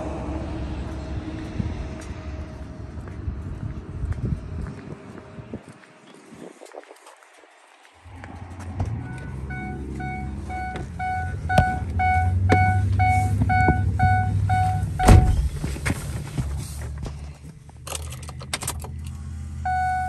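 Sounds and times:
low rumble: 0:00.0 - 0:05.6, 0:08.0 - 0:16.6
dashboard warning chime beeping: 0:09.0 - 0:15.4, 0:19.6 - 0:20.0
van door shutting thump: 0:15.0 - 0:15.7.

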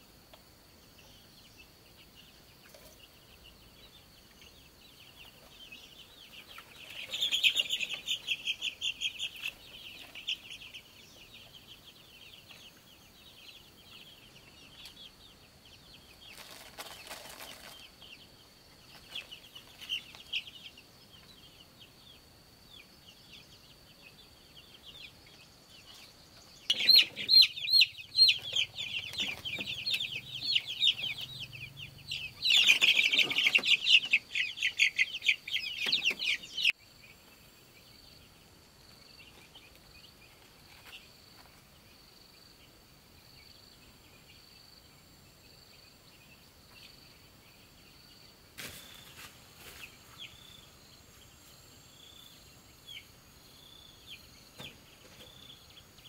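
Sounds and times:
chick peeping: 0:00.0 - 0:56.0
rustling: 0:16.3 - 0:18.0.

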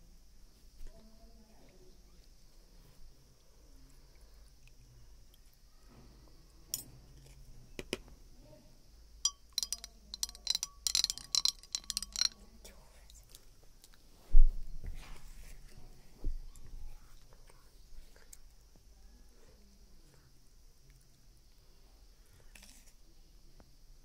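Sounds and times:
stirrer clinking in a glass: 0:09.2 - 0:12.5.

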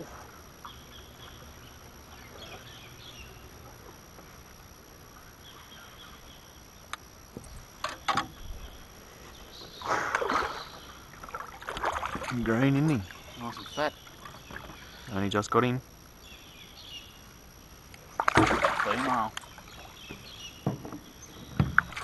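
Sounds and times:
quiet river ambience: 0:00.0 - 0:22.0
fish splashing in water: 0:09.8 - 0:12.4, 0:18.2 - 0:19.3.

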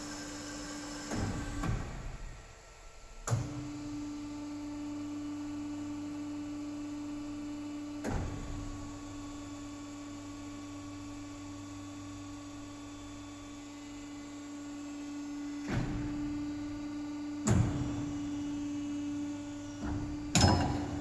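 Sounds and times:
machine clamping clunks: 0:19.8 - 0:21.0.

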